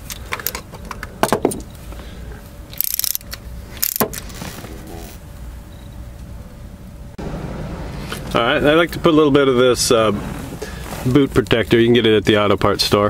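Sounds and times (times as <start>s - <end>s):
ratchet wrench clicking: 2.7s - 4.2s.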